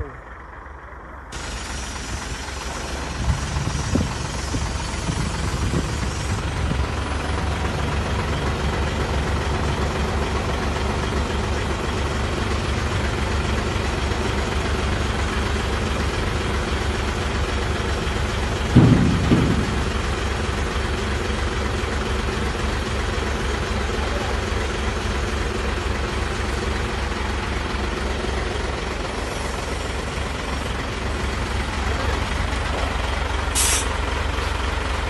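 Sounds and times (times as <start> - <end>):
truck diesel engine idling: 0.0 - 35.0
double thump: 18.7 - 20.4.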